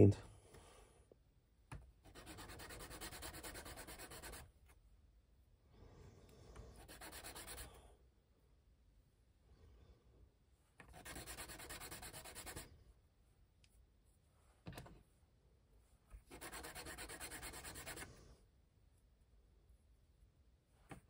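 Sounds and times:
sanding stick rubbing plastic: 2.1 - 4.4, 6.8 - 7.7, 10.9 - 12.7, 16.3 - 18.1.

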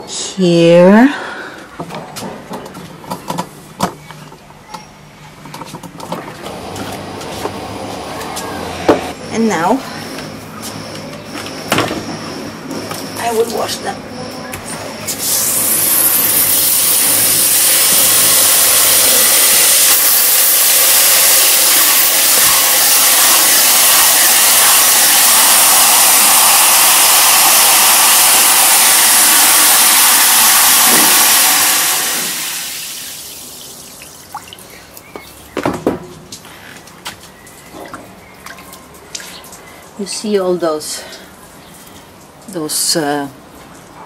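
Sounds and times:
hose nozzle spraying water into tub: 15.0 - 34.6.

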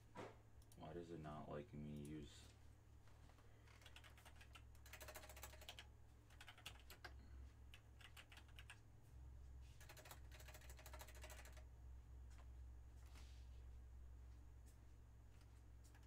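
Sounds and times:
typing on keyboard: 3.7 - 8.8, 9.8 - 11.7.

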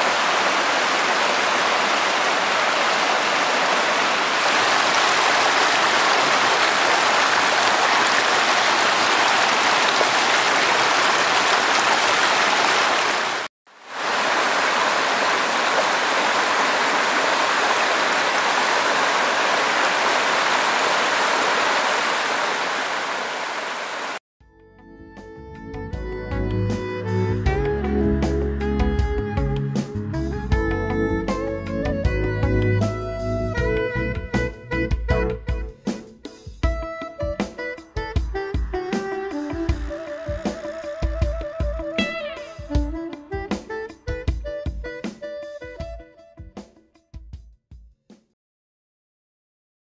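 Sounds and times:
stream splashing over rocks: 0.0 - 24.2.

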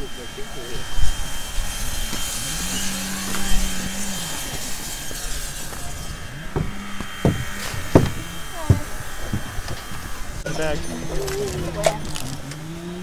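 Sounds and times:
steam locomotive hissing: 0.0 - 11.5
sharp knocks: 6.5 - 9.8.

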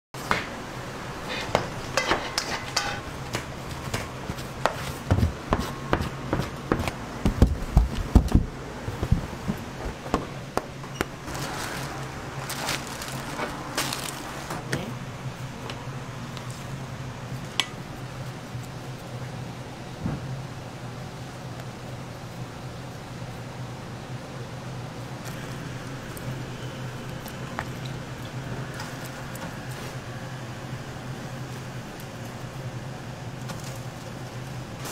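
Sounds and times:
dough kneaded by hand: 3.1 - 14.9
dull thumps: 3.4 - 10.7.

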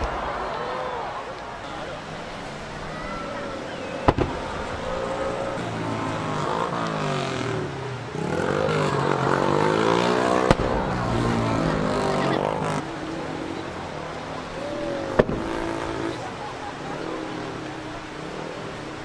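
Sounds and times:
firework bangs: 0.0 - 2.7, 3.9 - 5.0, 10.4 - 11.4, 15.1 - 16.2.

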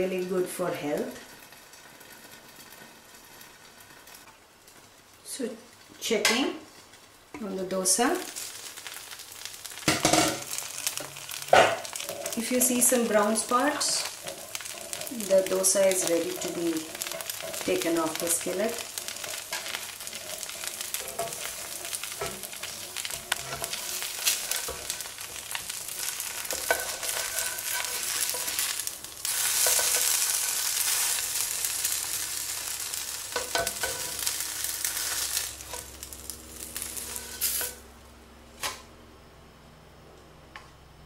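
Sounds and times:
dosa sizzling in oil: 0.0 - 38.0
spatula scraping and tapping: 19.0 - 28.7.

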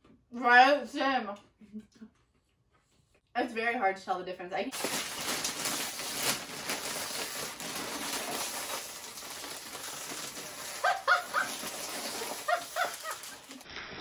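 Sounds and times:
plastic snack bags crinkling: 4.7 - 13.7
dog yipping: 10.8 - 13.4.

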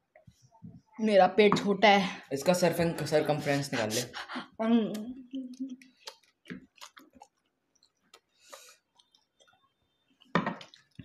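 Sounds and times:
mouth smacks of chewing: 4.9 - 11.0.

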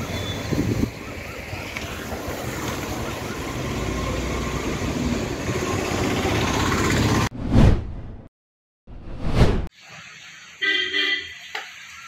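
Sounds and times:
whoosh: 7.4 - 8.3, 8.9 - 9.7.

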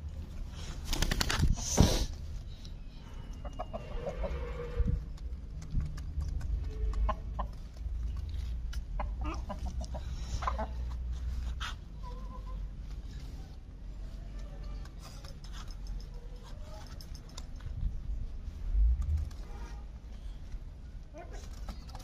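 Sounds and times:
birds clucking and squawking: 3.3 - 5.0, 8.7 - 13.3.

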